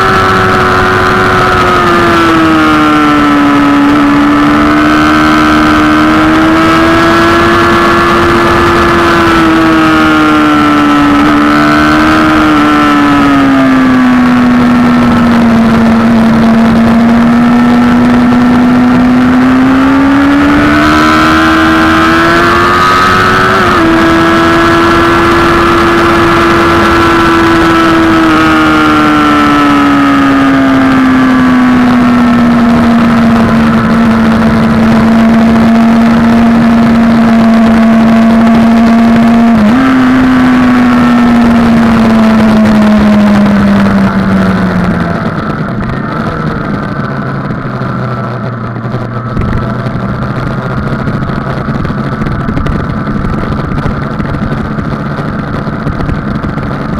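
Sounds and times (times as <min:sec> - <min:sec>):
motorcycle engine: 0:00.0 - 0:56.9
wind rush: 0:00.0 - 0:56.9
gearshift: 0:30.7 - 0:56.9.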